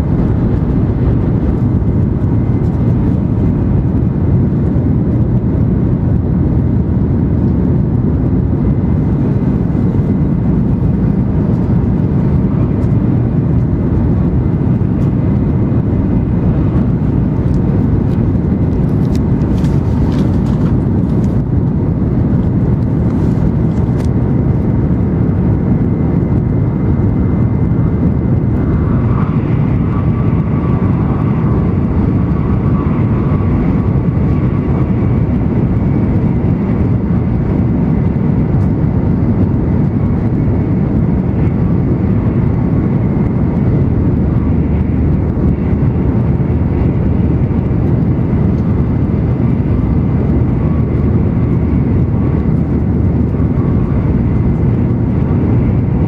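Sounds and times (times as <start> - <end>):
train cabin rumble: 0.0 - 56.0
faint high whine: 25.1 - 56.0.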